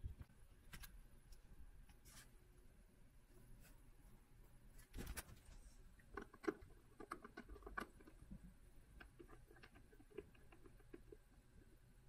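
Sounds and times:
small parts clicking and tapping: 0:06.0 - 0:12.0.

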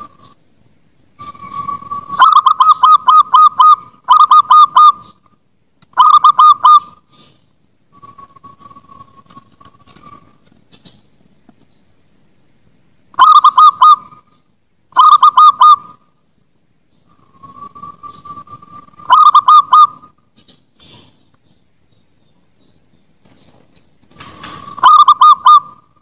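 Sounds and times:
dove cooing: 0:01.2 - 0:05.2, 0:06.0 - 0:07.3, 0:13.2 - 0:14.3, 0:14.9 - 0:16.0, 0:17.1 - 0:20.2, 0:24.2 - 0:26.0.

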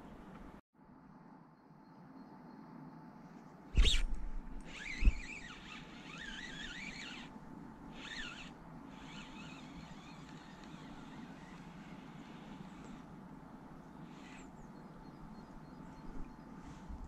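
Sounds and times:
fishing reel gears whining: 0:04.6 - 0:07.3, 0:07.9 - 0:13.1, 0:14.0 - 0:14.5.

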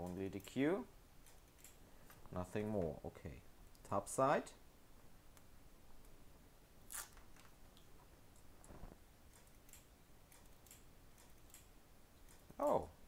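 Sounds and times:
faint clicks and handling noises: 0:01.2 - 0:03.0.

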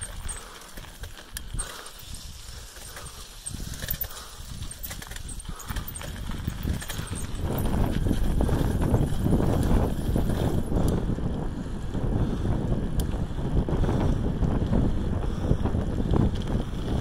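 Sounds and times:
wind on microphone: 0:01.4 - 0:17.0
camera rumble and knocking: 0:02.6 - 0:11.4.

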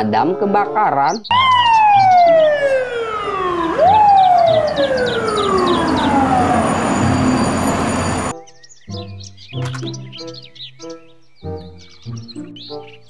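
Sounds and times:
fire engine siren: 0:01.3 - 0:08.3.

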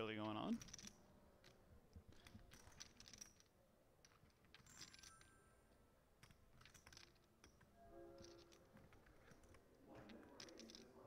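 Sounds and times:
poker chips clicking: 0:10.2 - 0:11.0.

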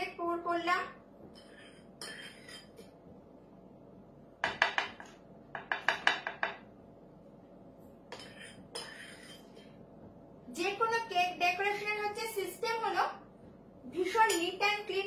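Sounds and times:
spoon and knife clinking: 0:01.4 - 0:02.9, 0:08.1 - 0:09.7.

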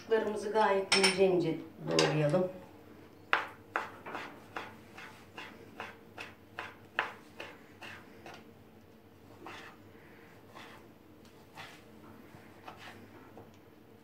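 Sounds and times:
knife slicing on cutting board: 0:11.4 - 0:11.9.

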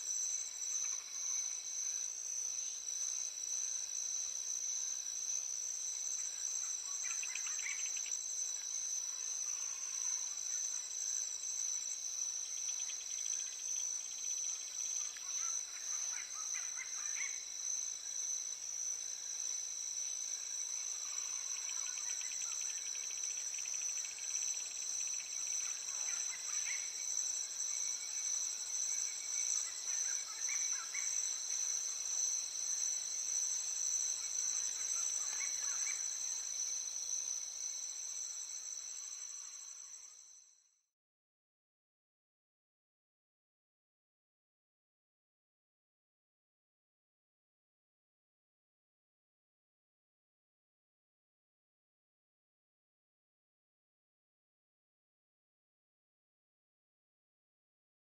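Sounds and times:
high-pitched insect trill: 0:00.0 - 0:40.7.

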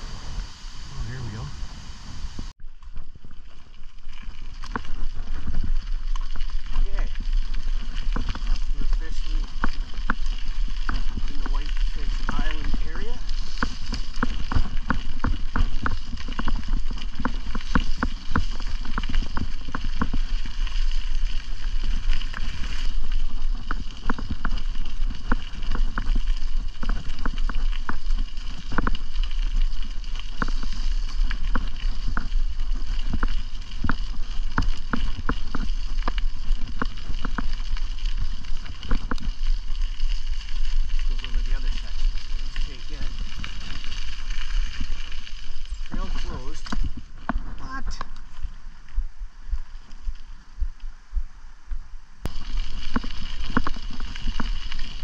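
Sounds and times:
wind on microphone: 0:00.0 - 0:03.3
bicycle tyre and drivetrain noise: 0:00.0 - 0:55.0
bike clicks and rattles: 0:02.6 - 0:48.5, 0:52.3 - 0:55.0.

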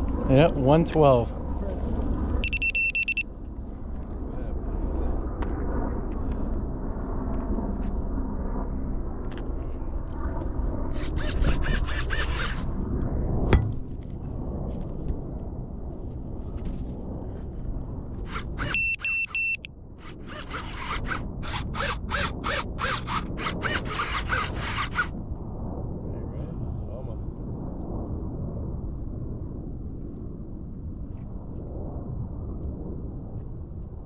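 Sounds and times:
high electronic beeps: 0:02.4 - 0:03.2, 0:18.7 - 0:19.7
low rumble: 0:25.1 - 0:34.0.

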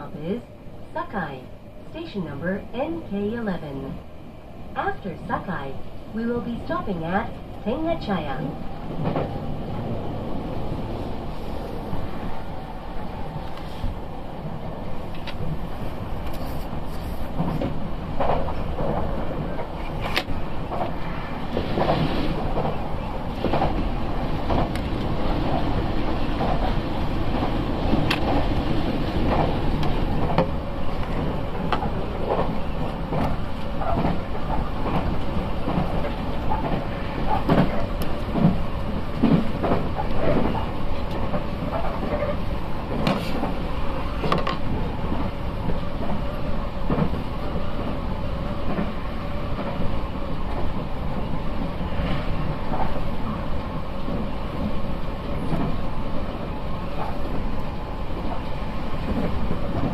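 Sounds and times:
rumble of train wheels on rail: 0:00.0 - 0:59.9
rail joint knocks and clicks: 0:08.1 - 0:10.8, 0:17.4 - 0:43.6, 0:44.2 - 0:46.2, 0:54.0 - 0:55.9, 0:59.0 - 0:59.9.

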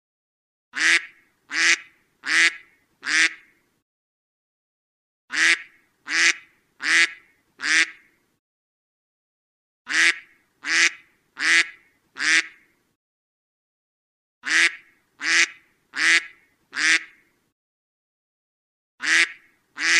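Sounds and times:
duck quacking loudly: 0:00.8 - 0:03.5, 0:05.3 - 0:08.1, 0:09.9 - 0:12.7, 0:14.4 - 0:17.2, 0:19.0 - 0:19.9.

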